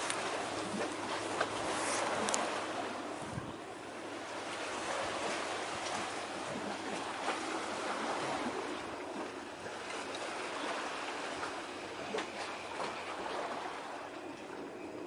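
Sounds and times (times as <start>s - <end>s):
water rushing: 0.0s - 15.0s.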